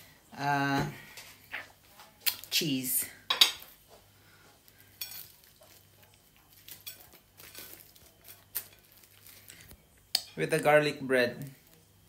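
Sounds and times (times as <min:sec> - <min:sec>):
cutlery clinking on plate: 0:05.0 - 0:05.8.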